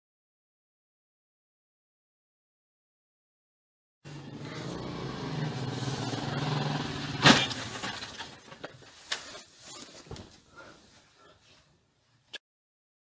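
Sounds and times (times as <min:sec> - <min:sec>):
motorcycle engine running: 0:04.1 - 0:08.4
motorcycles crashing: 0:04.1 - 0:09.5
knocks and clatters: 0:07.1 - 0:10.4.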